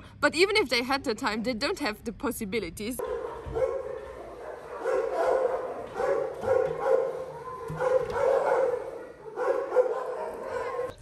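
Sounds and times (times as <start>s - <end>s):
puppy barking and yipping: 3.0s - 10.9s.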